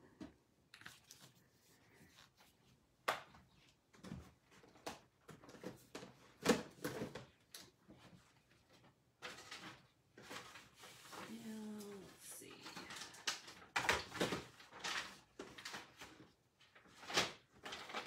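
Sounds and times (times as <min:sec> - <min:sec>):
paper supplies clicking and rustling: 0:04.0 - 0:18.0.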